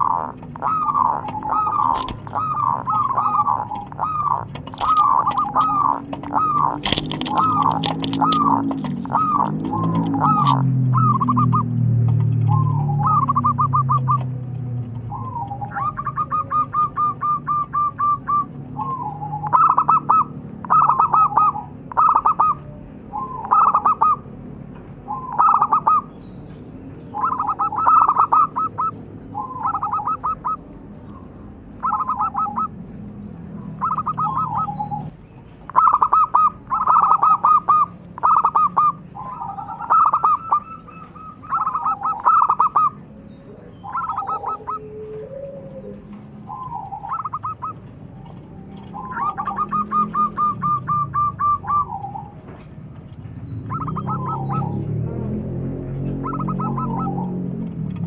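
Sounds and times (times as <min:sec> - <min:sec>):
dove cooing: 0:00.0 - 0:24.4, 0:25.1 - 0:26.1, 0:27.1 - 0:52.6, 0:53.6 - 0:58.0
low background hum: 0:00.0 - 0:58.0.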